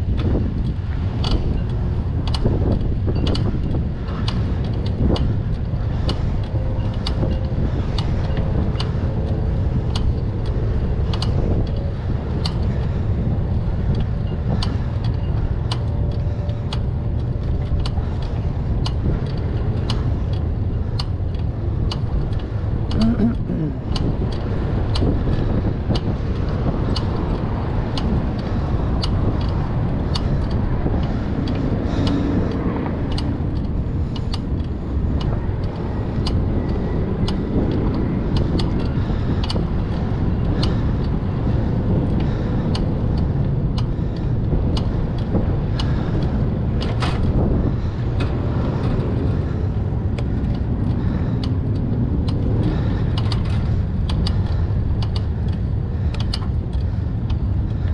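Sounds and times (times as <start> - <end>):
bicycle tyres rolling: 0.0 - 23.0, 23.7 - 57.9
bike clicks and rattles: 0.0 - 57.9
wind rush on microphone: 0.0 - 57.9.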